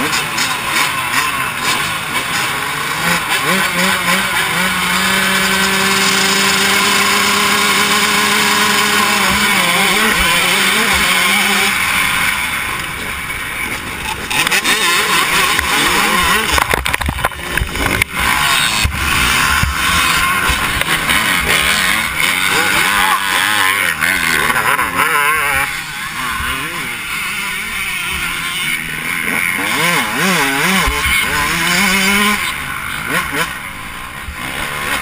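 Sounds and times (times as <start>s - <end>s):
motocross bikes revving: 0.0s - 35.0s.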